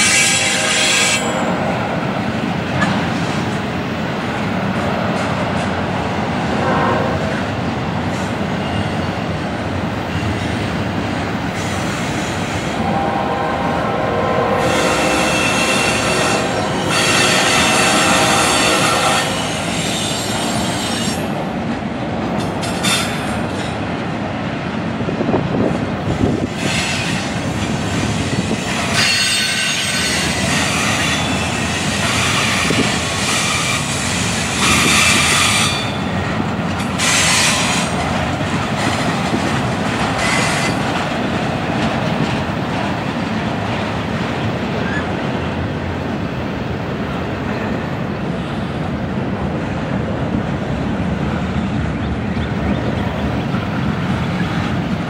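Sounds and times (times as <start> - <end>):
freight train wheels rolling: 0.0 - 55.0
high wheel squeal: 11.6 - 21.2.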